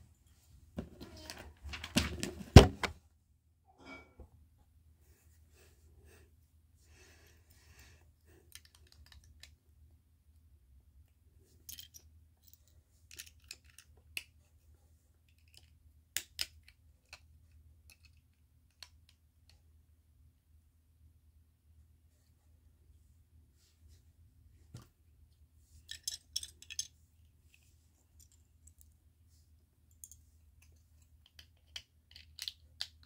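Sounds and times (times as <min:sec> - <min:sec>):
plastic bricks clicking: 0:08.5 - 0:09.5, 0:25.8 - 0:26.9, 0:31.2 - 0:33.0.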